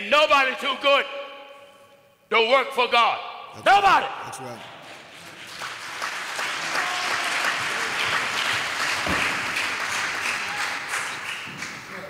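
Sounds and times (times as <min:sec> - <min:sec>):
congregation applauding: 0:04.6 - 0:12.0.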